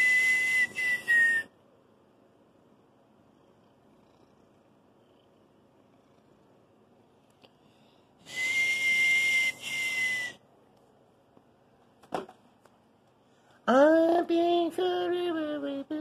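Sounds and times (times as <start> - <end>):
hissy high whistle: 0.0 - 1.6, 8.2 - 10.4.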